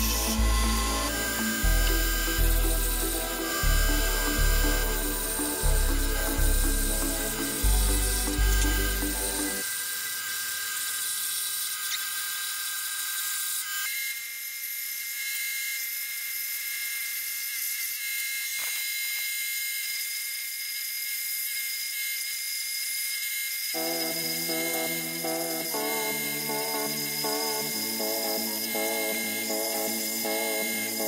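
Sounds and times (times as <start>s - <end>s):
scroll saw cutting wood: 0.0s - 31.0s.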